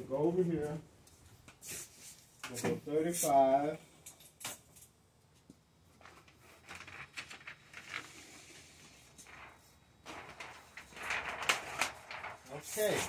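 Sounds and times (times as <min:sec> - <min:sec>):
film rustling and scraping: 0:06.0 - 0:13.0.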